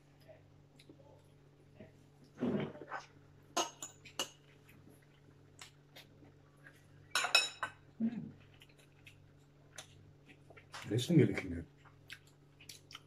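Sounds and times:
forks clinking on plates: 7.1 - 7.8.

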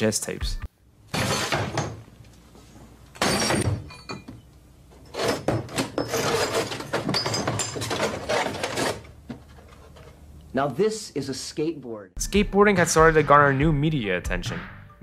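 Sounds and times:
broken glass crunching and clinking: 6.0 - 9.0.

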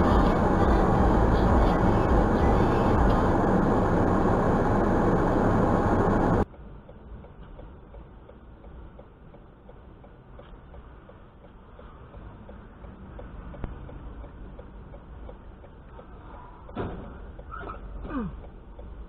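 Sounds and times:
car cabin and road noise: 0.0 - 19.0
car idling hum: 0.0 - 19.0
faint regular ticking: 6.4 - 17.5, 18.4 - 19.0.

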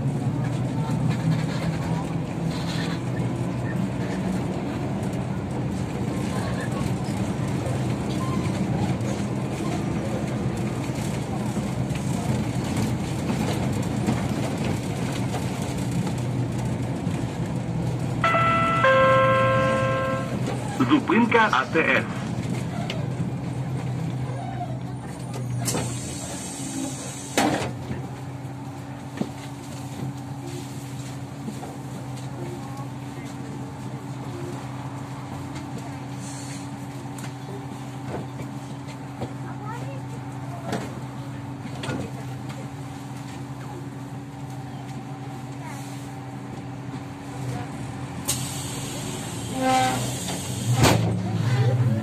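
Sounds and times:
trolleybus low hum: 0.0 - 52.0
short beep: 18.2 - 20.4.

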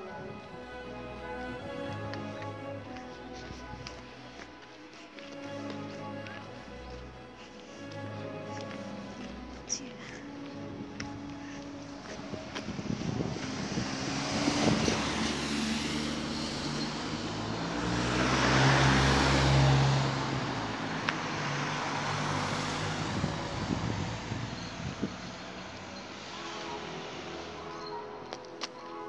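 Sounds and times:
cars passing by: 0.0 - 29.0.

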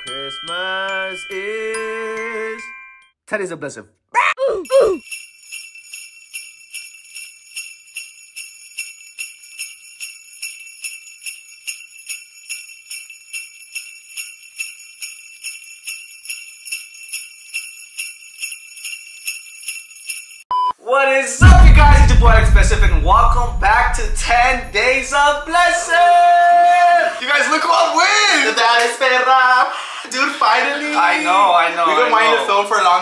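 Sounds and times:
jingle bells shaken: 4.6 - 20.5.

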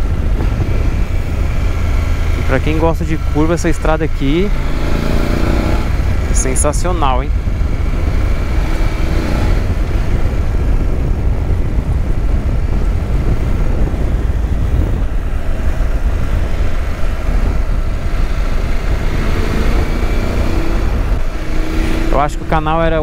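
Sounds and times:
faint motorcycle engine running: 0.0 - 23.0
wind rumble on microphone: 0.0 - 23.0.

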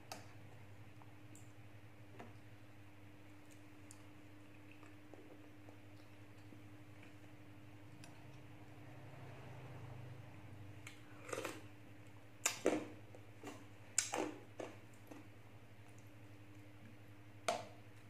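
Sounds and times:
low steady hum: 0.0 - 18.0
wet chewing and sipping: 3.4 - 7.2.

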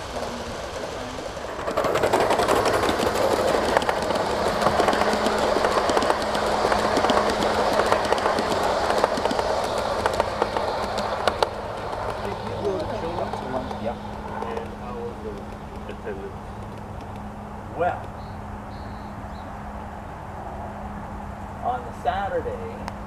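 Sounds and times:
model train wheels rumbling: 0.0 - 17.4
rapid clicking on track: 0.0 - 17.4
steady low hum: 0.0 - 23.0.

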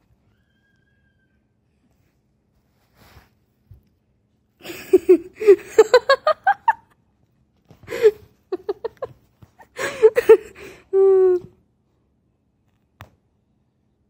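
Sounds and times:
person giggling: 4.6 - 7.0, 7.8 - 11.6.

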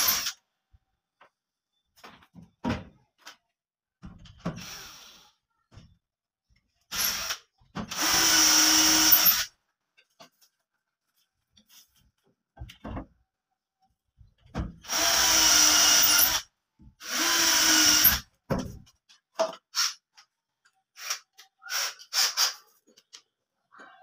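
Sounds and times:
cordless drill running: 7.0 - 9.5, 14.9 - 16.4, 17.0 - 18.2.

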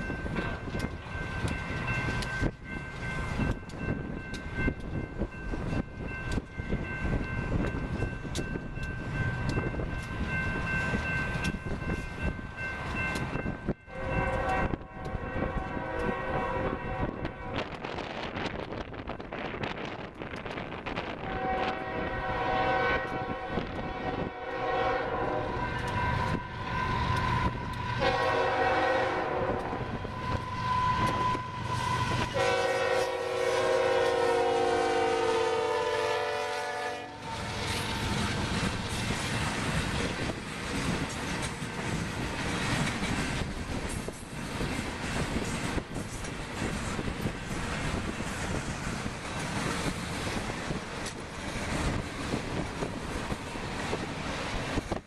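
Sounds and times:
wind noise on microphone: 0.0 - 35.3, 37.0 - 55.0
train wheels rumbling and clacking: 0.0 - 55.0
locomotive air horn blasts: 13.9 - 17.8, 21.2 - 38.0.

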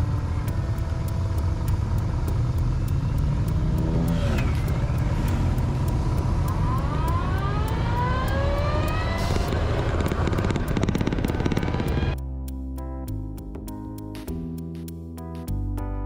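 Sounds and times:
motorcycle engine accelerating: 0.0 - 12.2
music: 0.0 - 16.0.

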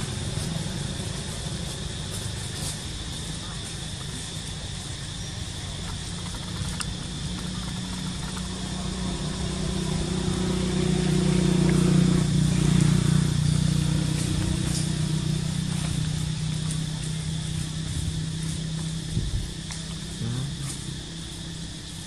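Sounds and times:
motor engine passing by: 6.0 - 22.0.

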